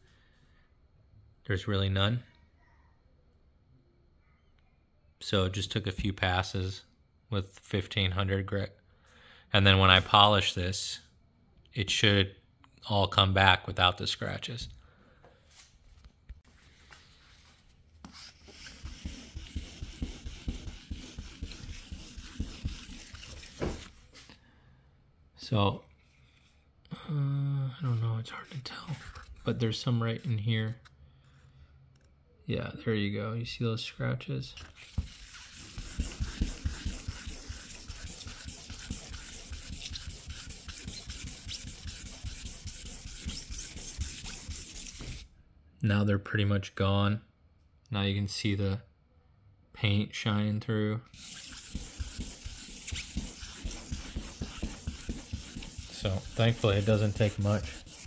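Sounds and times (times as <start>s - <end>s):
sandpaper rubbing wet paint: 18.0s - 24.2s, 34.8s - 45.3s, 51.1s - 58.0s.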